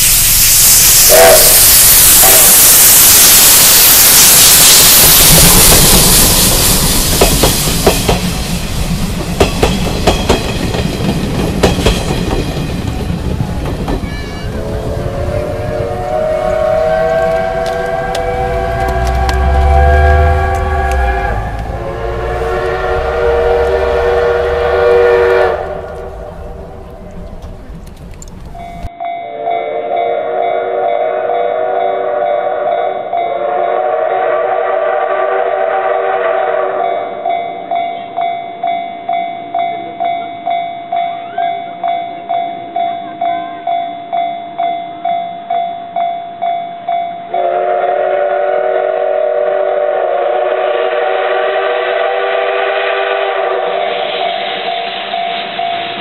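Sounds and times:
steam whistle blasts: 0.0s - 8.5s, 14.4s - 26.8s, 29.4s - 37.1s, 47.3s - 55.3s
level crossing warning bell: 14.1s - 24.8s, 25.7s - 33.8s, 36.9s - 47.6s.

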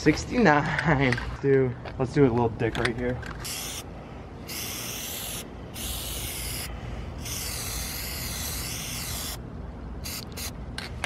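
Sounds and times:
aerosol can spraying: 3.4s - 3.8s, 4.5s - 9.4s, 10.0s - 10.5s.

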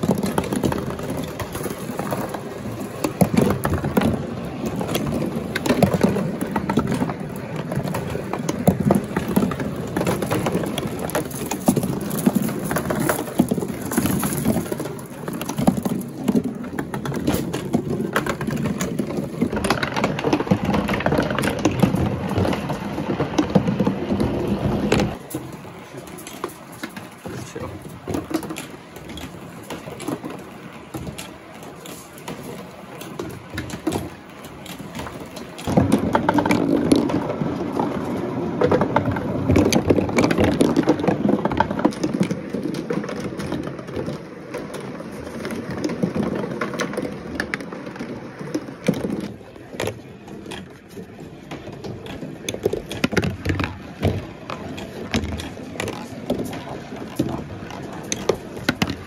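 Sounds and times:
marbles rolling through cardboard run: 0.0s - 59.0s.

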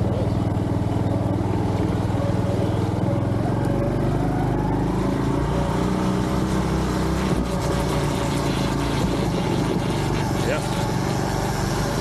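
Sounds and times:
motorcycle engine running: 0.0s - 12.0s
strange mechanical noise: 0.0s - 12.0s.

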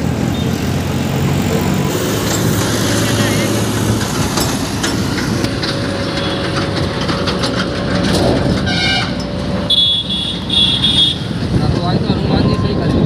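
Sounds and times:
vehicle engine and road noise: 0.0s - 13.0s
horn blast: 8.6s - 11.2s.

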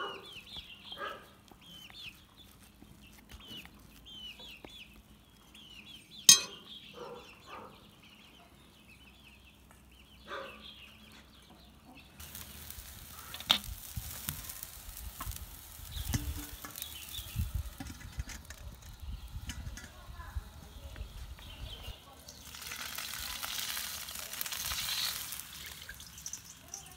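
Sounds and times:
steel bowls clanking: 6.3s - 6.6s
sharp clink: 6.3s - 6.7s
wok hissing: 12.2s - 26.9s.

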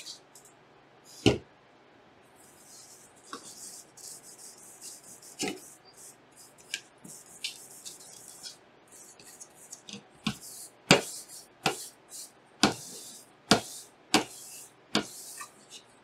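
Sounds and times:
paper towel scrubbing: 2.4s - 9.8s, 10.4s - 15.7s.

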